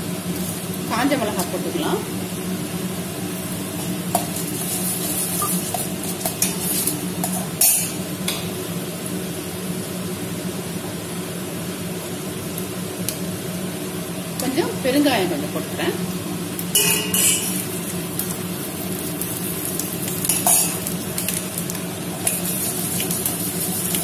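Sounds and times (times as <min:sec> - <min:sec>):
oil sizzling in a pot: 0:00.0 - 0:24.0.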